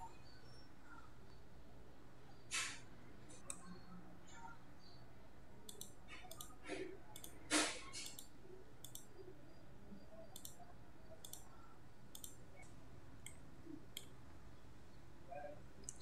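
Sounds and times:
faint mouse clicks: 0:02.5 - 0:04.5, 0:05.6 - 0:09.2, 0:10.2 - 0:14.2, 0:15.8 - 0:16.0.

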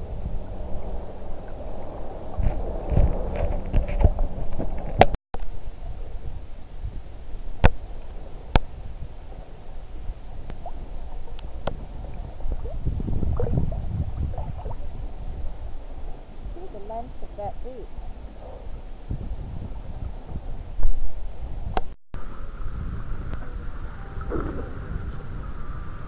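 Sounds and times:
sea water sloshing and gurgling: 0:00.0 - 0:05.0, 0:08.2 - 0:16.4, 0:22.2 - 0:26.0
low rumble: 0:00.0 - 0:26.0.

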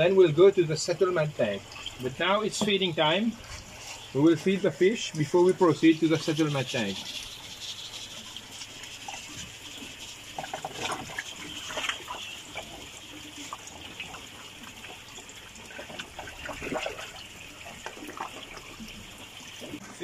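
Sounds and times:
water pouring into tank: 0:01.4 - 0:20.0
fish splashing at surface: 0:06.7 - 0:19.8.

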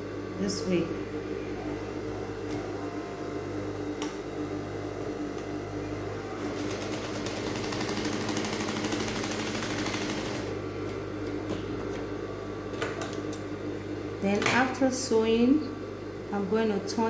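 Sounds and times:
motor hum: 0:00.0 - 0:17.0
sewing machine stitching: 0:06.4 - 0:10.5.

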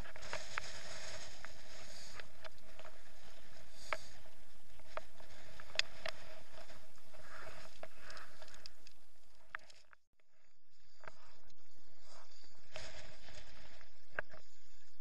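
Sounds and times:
wind rushing over camera: 0:00.0 - 0:09.7.

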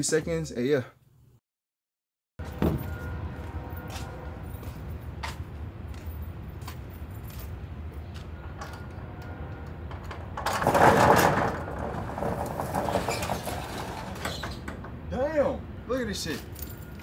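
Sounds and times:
metal roll-up door rattling: 0:10.0 - 0:15.1.

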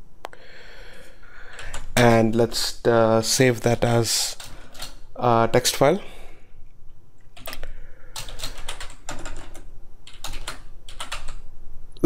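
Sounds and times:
keyboard typing: 0:01.5 - 0:02.1, 0:04.3 - 0:05.0, 0:07.4 - 0:11.4.

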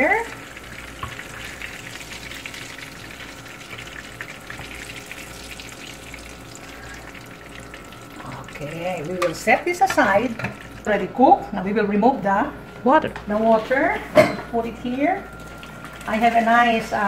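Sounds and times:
fish sizzling in oil: 0:00.0 - 0:11.1.

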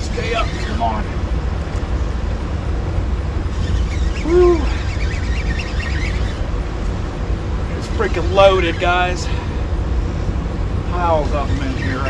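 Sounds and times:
low rumble of wind: 0:00.0 - 0:12.0
river water below dam: 0:00.0 - 0:12.0
hoot-like call: 0:03.7 - 0:06.4.

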